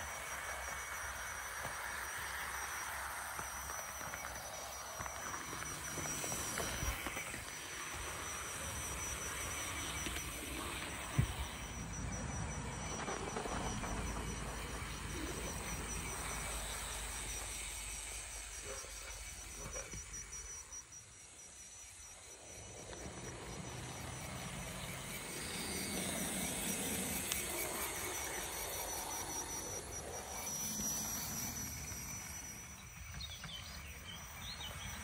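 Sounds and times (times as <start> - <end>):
insects chirping: 0.0 - 35.0
model locomotive running on track: 0.0 - 35.0.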